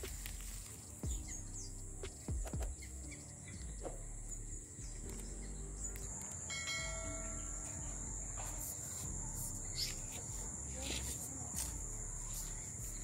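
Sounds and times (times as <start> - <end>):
insects trilling: 0.0 - 13.0
low rumble: 3.6 - 10.7.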